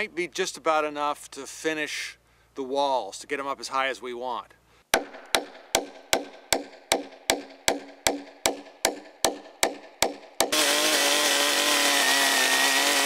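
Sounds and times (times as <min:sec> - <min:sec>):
hatchet striking a log: 0:04.9 - 0:13.0
chainsaw running: 0:10.4 - 0:13.0.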